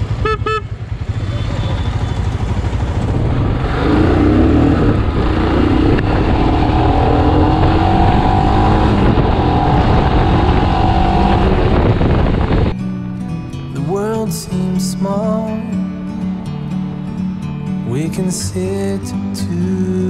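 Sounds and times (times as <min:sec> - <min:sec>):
motorcycle engine accelerating: 0:00.0 - 0:12.8
wind rushing over microphone: 0:02.7 - 0:12.8.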